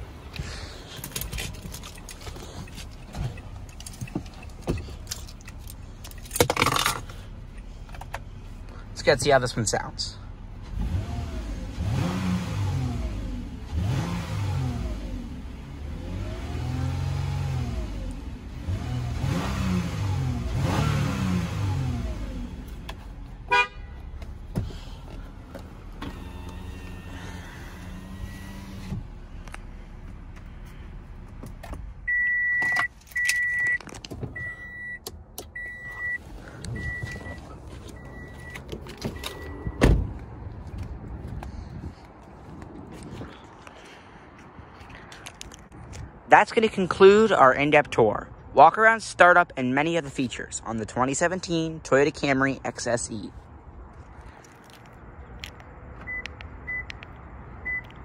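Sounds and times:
car engine revving: 0:10.5 - 0:23.1.

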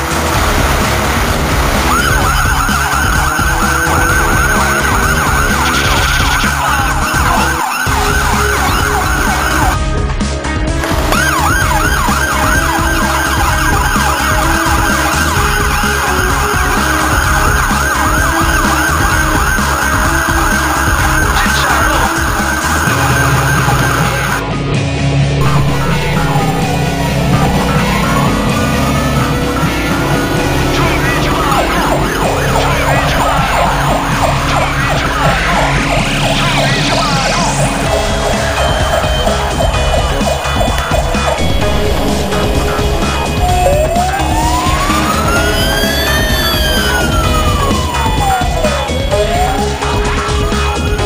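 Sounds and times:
fire engine siren yelping: 0:00.0 - 0:09.9, 0:10.8 - 0:24.4, 0:25.4 - 0:51.0
steady low rumble: 0:25.2 - 0:48.4
rising tone: 0:25.4 - 0:51.0.

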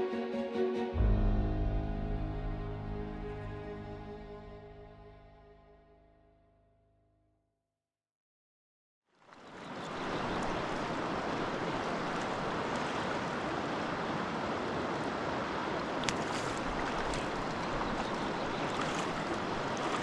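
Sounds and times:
river running over stones: 0:09.1 - 0:20.0
water splash: 0:15.9 - 0:20.0.

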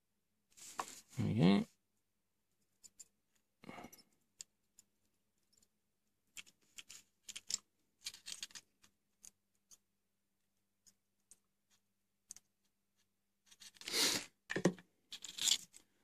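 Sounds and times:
small clicks and taps of hand work: 0:10.8 - 0:12.7.

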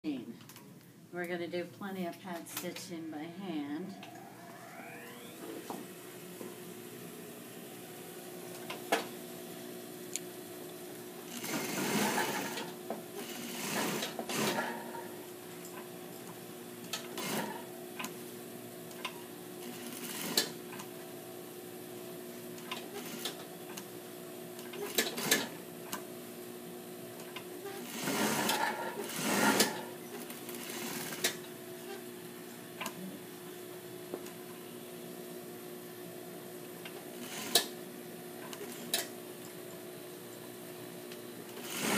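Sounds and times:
steady hum: 0:00.0 - 0:11.8
sewing machine stitching: 0:11.3 - 0:15.0, 0:16.9 - 0:17.7, 0:27.6 - 0:31.4, 0:37.2 - 0:37.7, 0:41.5 - 0:41.9.

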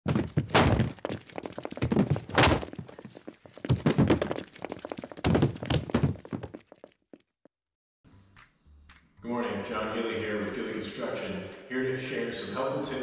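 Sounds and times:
heavy thuds: 0:00.0 - 0:06.7
clattering knocks: 0:00.1 - 0:06.8.

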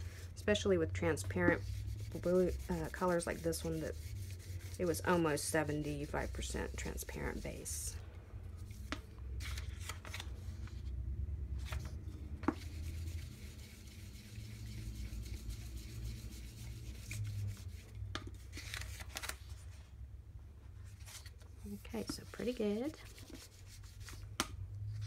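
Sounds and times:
baren rubbing on paper: 0:01.2 - 0:07.9
paper rustling: 0:08.8 - 0:10.9, 0:18.2 - 0:19.8.

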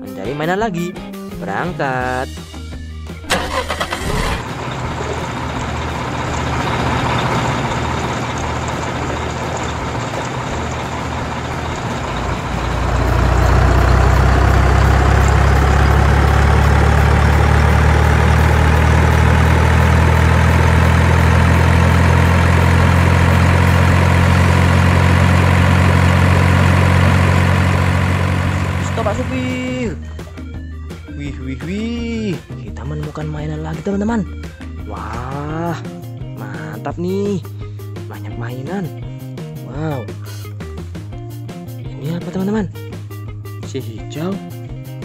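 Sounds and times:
heavy diesel truck engine: 0:03.1 - 0:31.2.

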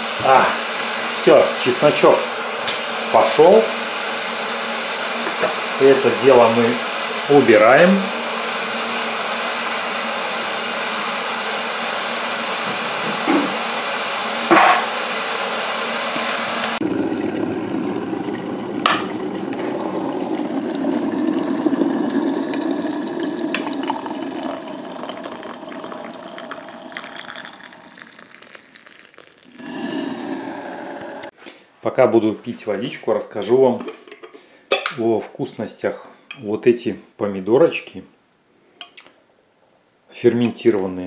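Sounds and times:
water heating with hiss and hum: 0:00.0 - 0:31.8
water bubbling: 0:16.8 - 0:31.3.

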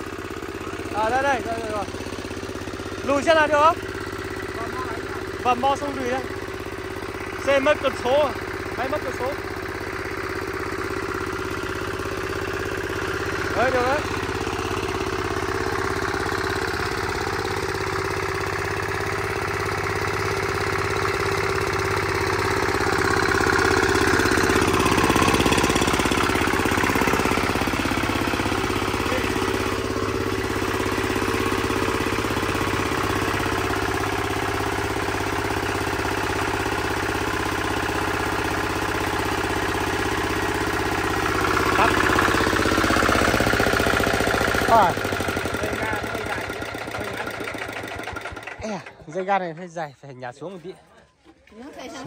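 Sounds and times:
small engine idling: 0:00.0 - 0:52.0.

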